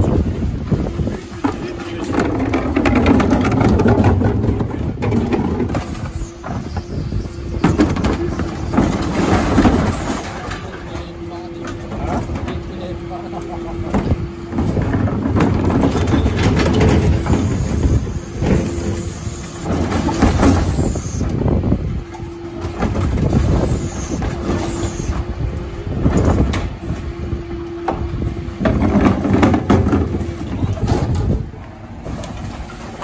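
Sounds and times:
bin and contents clattering: 1.0 - 6.6, 7.6 - 11.1, 13.9 - 17.8, 28.6 - 33.0.

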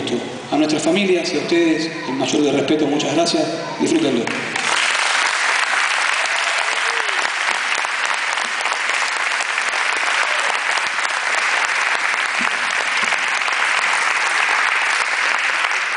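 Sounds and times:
audience applauding: 4.3 - 15.9.

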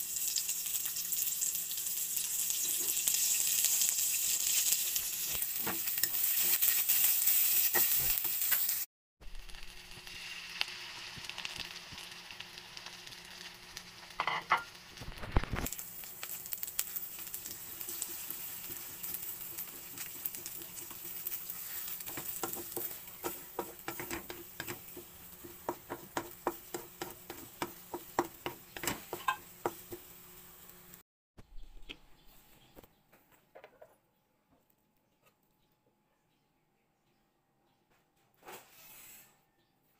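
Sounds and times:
food sizzling in a wok: 0.0 - 31.0
utensil scraping a wok: 15.6 - 30.2, 38.5 - 39.4.

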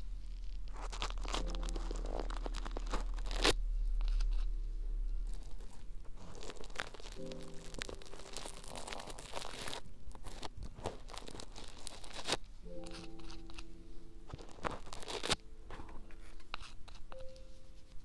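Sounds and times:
fingers squeezing sticky slime: 0.0 - 4.5, 5.2 - 13.7, 14.3 - 15.4.

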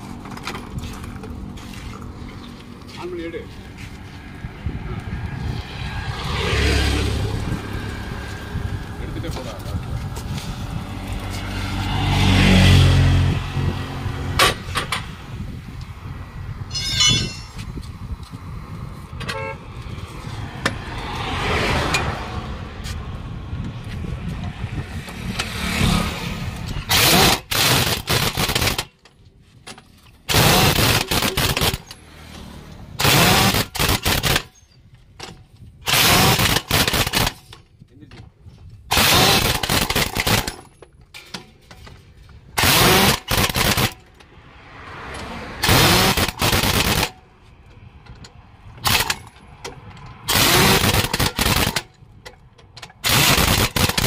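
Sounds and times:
pneumatic impact wrench hammering: 14.3 - 15.2, 16.7 - 17.7, 26.6 - 32.1, 32.9 - 37.6, 38.9 - 44.2, 45.6 - 47.2, 48.3 - 54.0.

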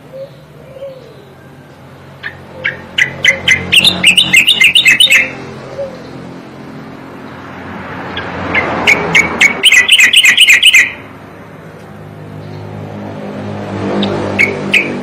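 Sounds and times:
bird singing chattering notes: 0.0 - 6.2, 8.2 - 11.0, 14.0 - 15.0.

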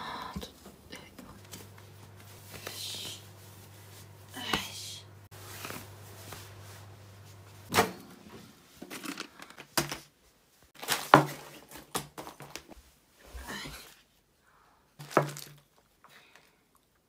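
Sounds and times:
low steady hum: 0.0 - 10.6.

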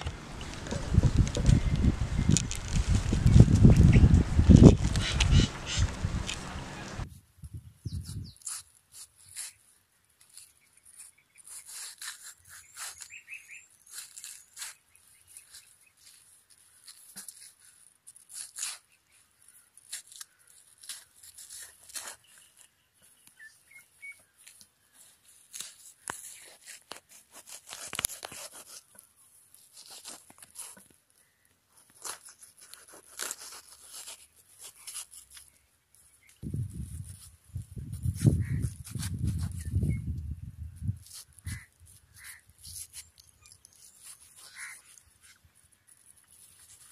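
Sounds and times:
knife cutting watermelon: 0.1 - 7.0, 10.3 - 13.2, 16.8 - 18.9, 31.9 - 35.6, 36.4 - 40.1.

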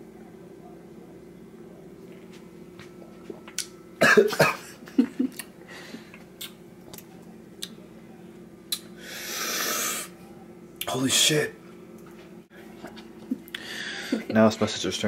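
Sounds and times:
man coughing: 4.0 - 5.1.

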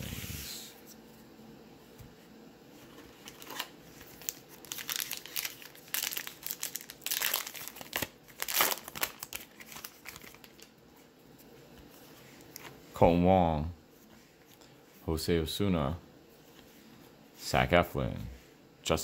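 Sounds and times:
plastic wrapper crinkling: 3.1 - 10.7.

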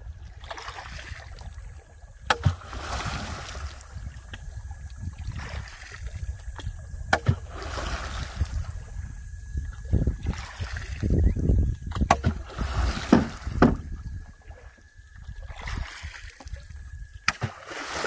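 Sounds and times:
steady low rumble: 0.0 - 17.3
water sloshing and splashing: 0.0 - 18.0
knocks against boat: 11.9 - 14.0.

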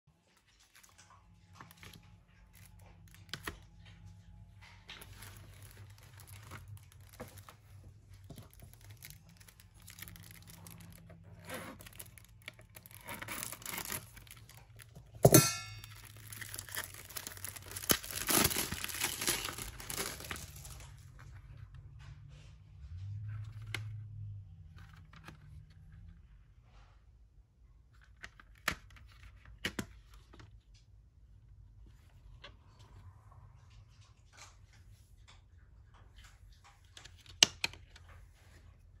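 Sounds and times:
plastic wrap crinkling and tearing: 1.6 - 3.6, 4.8 - 21.3
plastic wrap snapping: 4.9 - 21.1.

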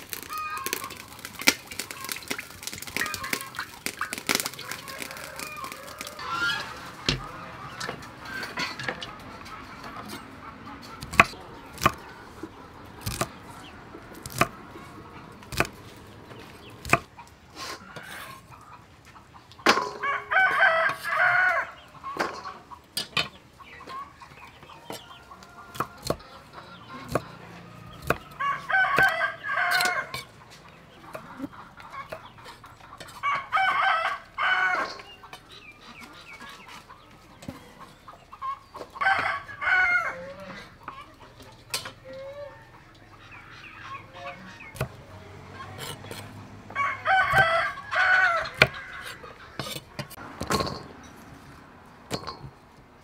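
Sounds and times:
rooster crowing: 4.6 - 6.8, 20.0 - 21.8, 28.2 - 30.1, 33.2 - 35.0, 39.0 - 40.6, 46.7 - 49.2
cleaver chopping on wooden block: 13.0 - 13.3, 16.8 - 17.1.

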